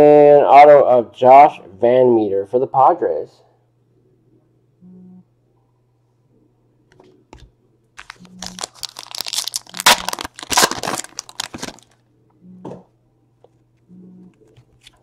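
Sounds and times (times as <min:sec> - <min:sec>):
cards rustling: 0:08.0 - 0:12.0
foil wrapper tearing and crinkling: 0:08.0 - 0:12.0.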